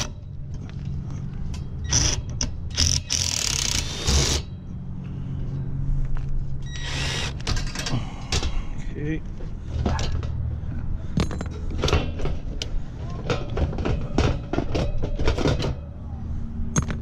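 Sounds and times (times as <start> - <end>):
cordless drill bursts: 1.9 - 4.5, 6.7 - 7.4.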